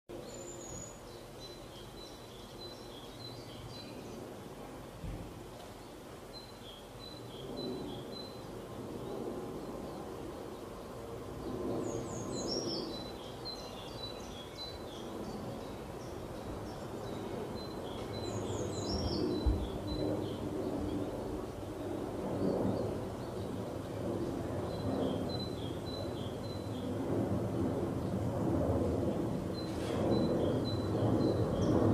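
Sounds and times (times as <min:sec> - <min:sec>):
small birds singing: 0:00.1 - 0:31.9.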